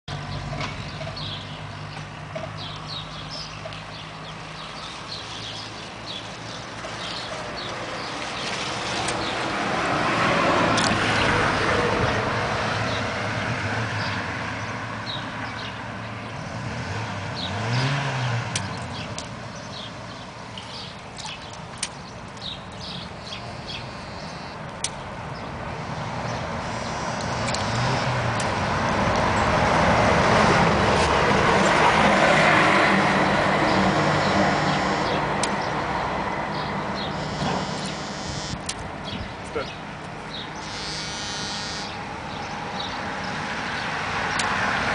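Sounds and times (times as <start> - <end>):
road traffic passing: 0.0 - 44.9.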